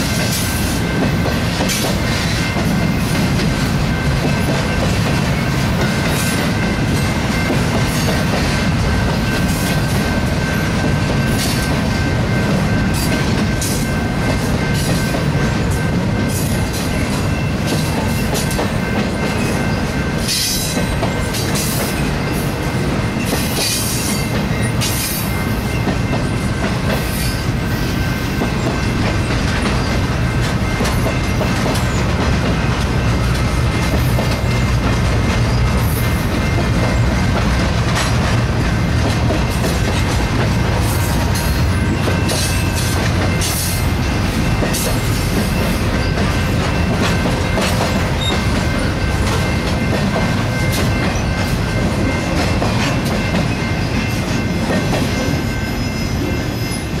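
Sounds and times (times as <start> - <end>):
train wheels rumbling on rail: 0.0 - 57.0
high wheel squeal: 55.3 - 57.0.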